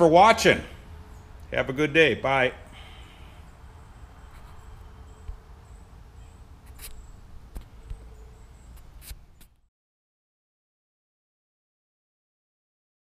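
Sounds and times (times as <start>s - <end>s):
low steady hum: 0.0s - 9.7s.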